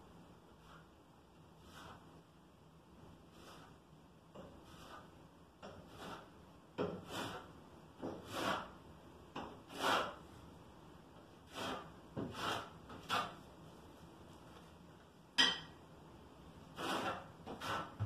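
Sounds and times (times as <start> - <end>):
trowel scraping mortar: 1.6 - 2.0, 3.3 - 3.8, 4.4 - 8.8, 9.5 - 10.2, 11.4 - 13.4, 16.7 - 18.0.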